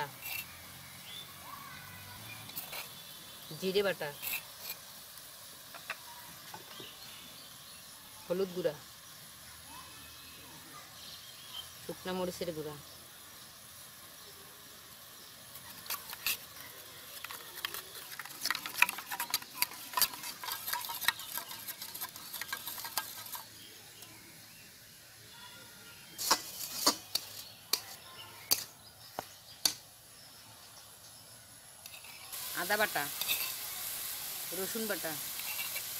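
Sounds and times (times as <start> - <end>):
spoon stirring in a steel bowl: 0.1 - 0.6, 2.3 - 4.9, 15.5 - 23.7, 26.2 - 28.7, 31.8 - 33.7, 35.2 - 35.9.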